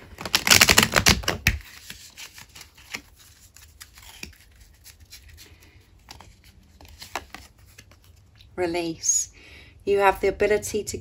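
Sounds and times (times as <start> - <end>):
cards clicking and sliding: 0.2 - 8.1.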